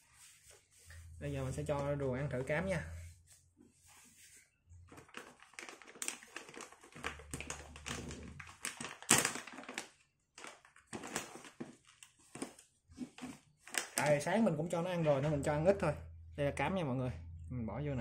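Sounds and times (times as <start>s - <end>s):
food bag rattling and rustling: 4.9s - 14.2s.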